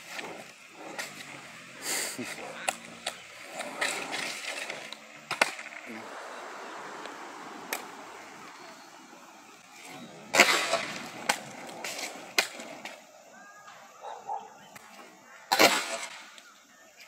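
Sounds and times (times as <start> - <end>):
skateboard deck clacking: 0.0 - 13.1
skateboard wheels rolling: 0.0 - 17.0.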